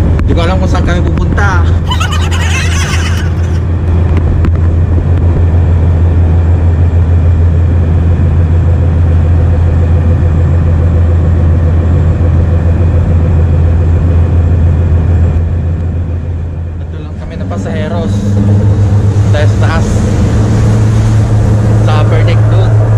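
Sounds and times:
ferry engines humming: 1.4s - 22.9s
rushing noise: 16.8s - 22.9s.

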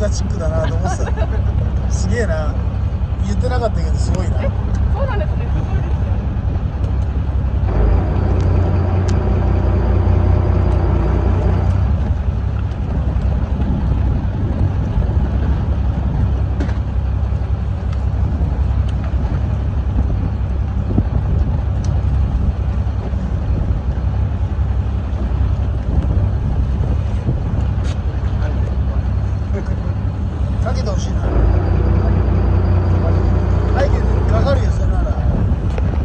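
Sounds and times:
boat engine running: 0.0s - 36.0s
wind buffeting microphone: 0.0s - 36.0s.

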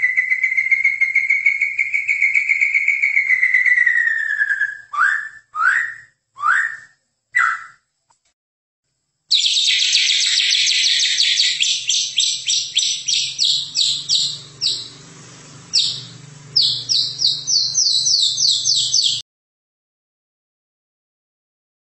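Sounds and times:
songbird singing down-sliding notes: 0.0s - 7.8s, 9.3s - 19.2s.

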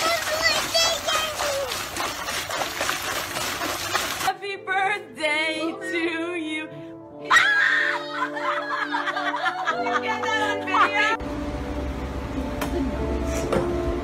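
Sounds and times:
water splashing in a trough: 0.0s - 4.3s
music with voices: 3.9s - 11.2s.

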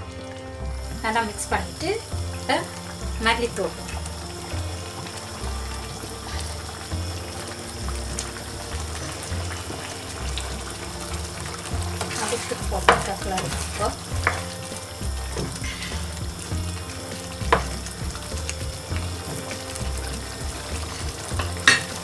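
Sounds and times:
curry sizzling in a pan: 0.0s - 22.0s
spoon knocking against pan: 12.0s - 14.8s.

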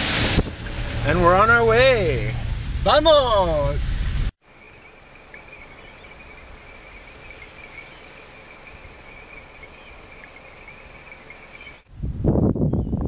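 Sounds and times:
insects droning: 4.4s - 11.8s
faint forest ambience: 4.4s - 11.9s.

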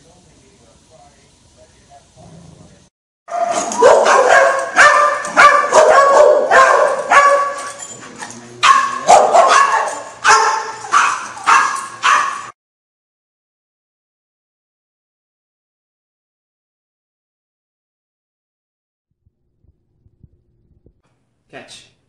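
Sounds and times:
dogs barking: 3.3s - 12.5s.

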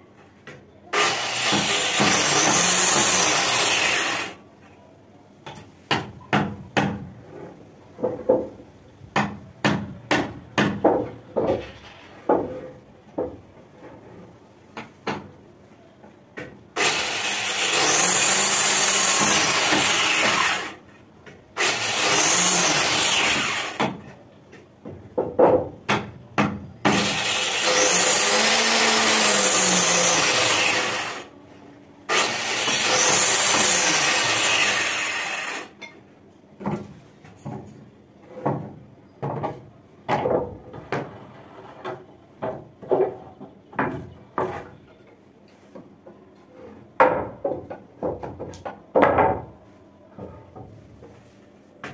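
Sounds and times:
power tool cutting wood: 1.0s - 4.4s, 16.8s - 20.8s, 21.6s - 23.8s, 26.9s - 31.3s, 32.1s - 35.7s
sharp wooden knocks: 8.0s - 12.6s, 24.8s - 27.2s.

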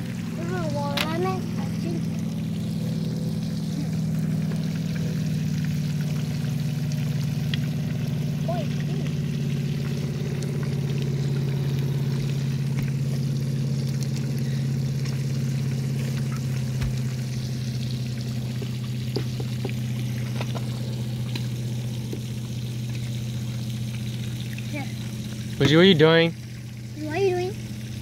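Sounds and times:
small pump humming: 0.0s - 28.0s
water pouring and trickling: 0.0s - 28.0s.

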